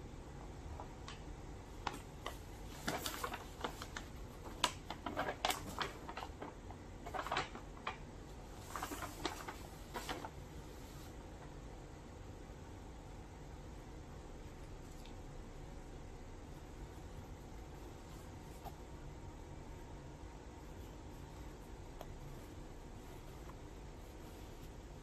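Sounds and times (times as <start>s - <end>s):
paper bag crinkling: 1.8s - 10.4s.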